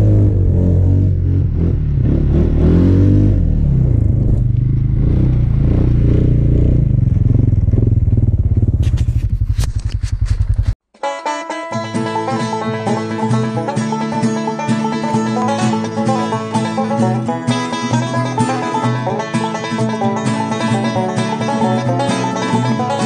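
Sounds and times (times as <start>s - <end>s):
snowmobile engine revving: 0.0s - 10.4s.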